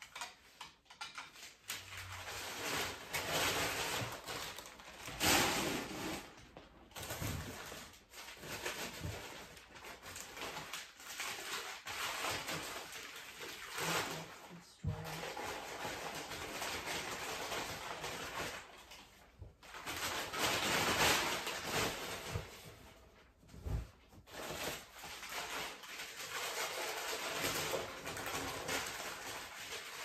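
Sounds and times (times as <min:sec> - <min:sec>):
packing paper rustling: 0:00.0 - 0:30.0.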